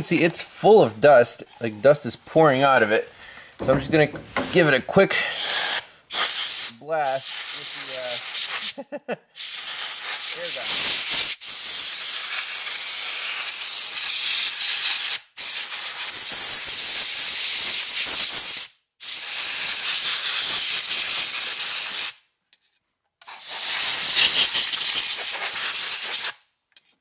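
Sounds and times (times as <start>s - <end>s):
compressed air hissing: 3.0s - 8.8s, 9.4s - 16.6s, 23.2s - 26.4s.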